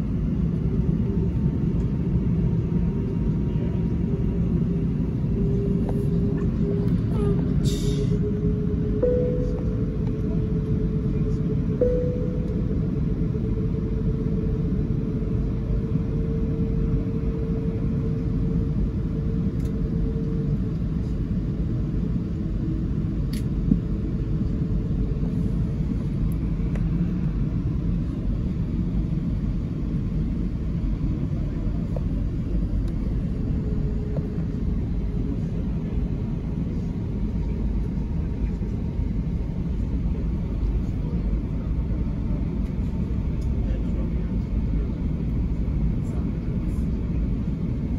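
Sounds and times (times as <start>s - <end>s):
low cabin rumble: 0.0s - 47.9s
thin mid-pitched hum: 9.0s - 10.3s, 11.7s - 13.2s.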